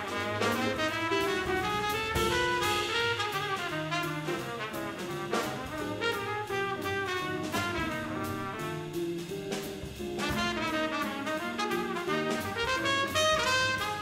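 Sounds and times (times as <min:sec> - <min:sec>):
drums and cymbals: 0:00.0 - 0:14.0
plucked double bass: 0:00.0 - 0:14.0
trumpet melody: 0:00.0 - 0:14.0
guitar: 0:08.1 - 0:13.7.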